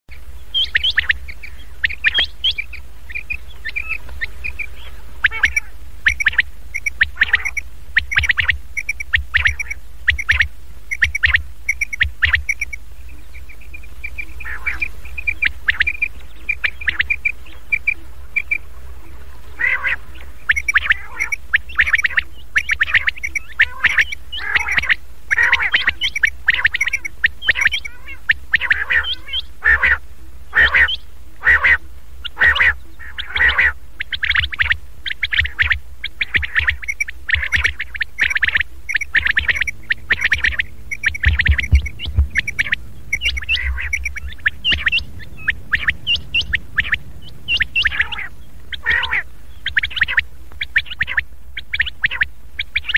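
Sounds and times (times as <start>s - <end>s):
recorded quail calls: 0.1s - 52.9s
steady low hum: 0.1s - 52.9s.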